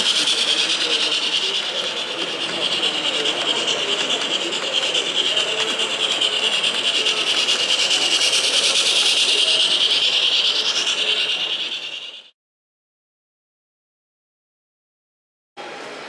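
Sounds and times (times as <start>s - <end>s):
model train whirring and rattling: 0.0s - 12.3s.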